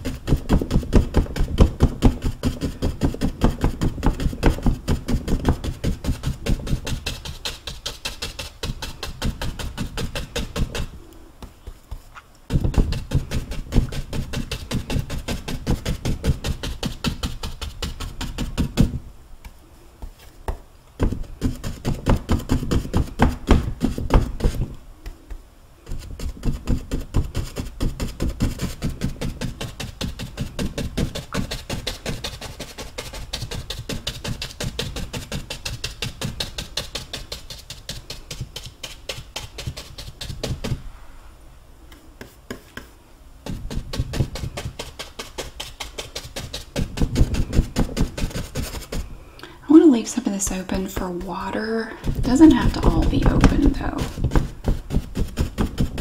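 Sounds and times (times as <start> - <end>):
paintbrush tapping on canvas: 50.9 - 56.0.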